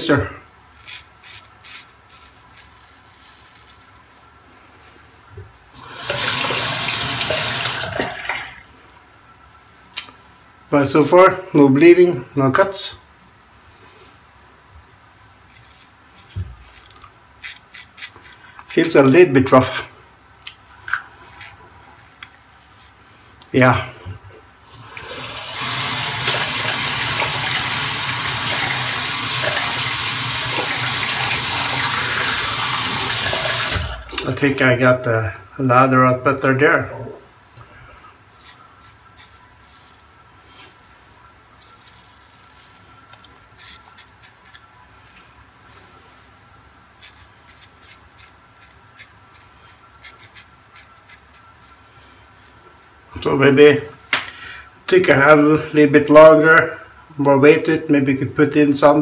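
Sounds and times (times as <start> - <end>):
razor scraping stubble: 0.8 - 3.9, 15.4 - 19.0, 38.3 - 40.7, 41.4 - 44.7, 47.0 - 51.8
tap water running into sink: 5.8 - 8.5, 24.9 - 34.3.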